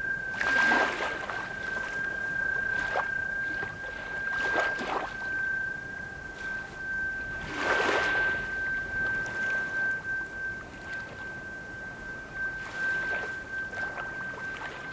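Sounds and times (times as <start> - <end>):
steady high-pitched tone: 0.0 - 14.9
wind buffeting microphone: 0.0 - 14.9.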